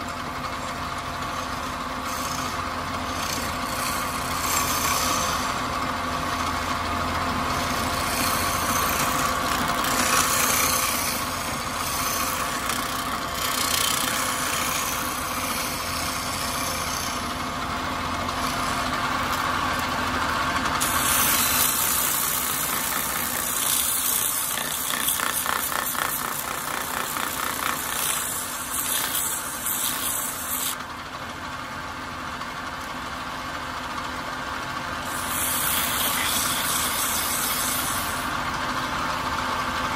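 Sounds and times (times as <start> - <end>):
wood lathe motor humming: 1.2 - 30.9, 34.8 - 39.0
gouge cutting wood shavings: 7.6 - 17.4, 18.0 - 30.8, 35.0 - 38.3
sandpaper rubbing spinning wood: 7.6 - 17.4, 18.3 - 30.8, 35.0 - 38.4.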